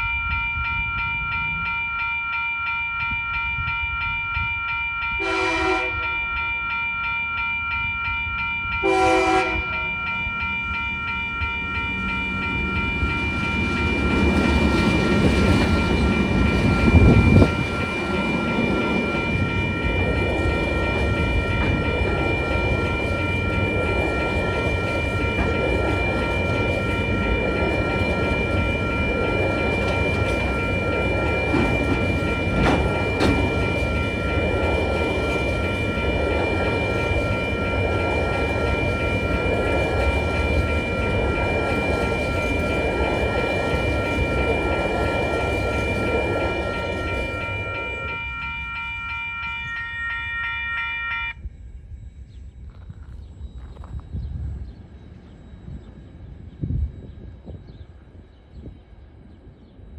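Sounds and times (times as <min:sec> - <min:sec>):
level crossing bells ringing: 0:00.0 - 0:51.4
train horn blasts: 0:05.2 - 0:06.1, 0:08.8 - 0:09.9
locomotives passing: 0:09.4 - 0:50.5.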